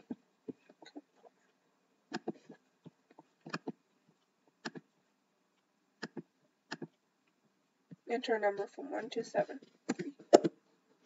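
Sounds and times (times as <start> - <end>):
computer mouse buttons clicking: 3.4 - 3.8, 6.0 - 7.0.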